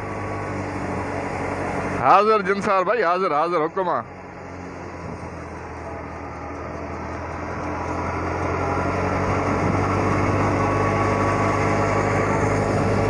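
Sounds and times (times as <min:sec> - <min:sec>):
thresher and tractor engine humming: 0:00.0 - 0:13.0.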